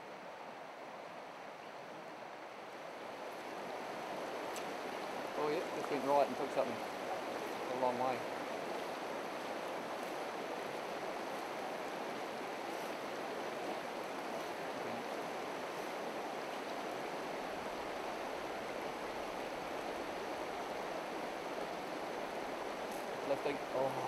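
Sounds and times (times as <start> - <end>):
river flowing over stones: 0.0 - 24.0.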